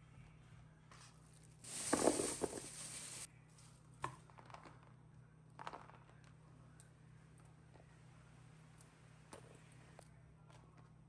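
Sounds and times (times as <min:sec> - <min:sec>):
plastic bag rustling: 0:01.7 - 0:03.3.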